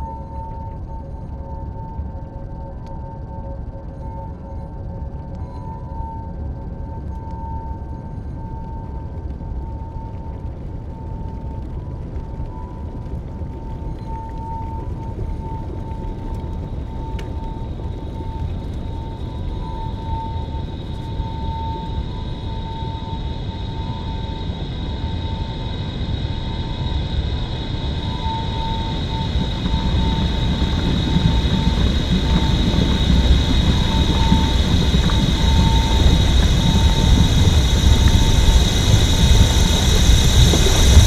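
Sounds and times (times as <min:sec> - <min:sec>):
dense low rumble drone: 0:00.0 - 0:41.0
faint pulsing tone: 0:00.0 - 0:41.0
steady high ring: 0:03.9 - 0:08.5.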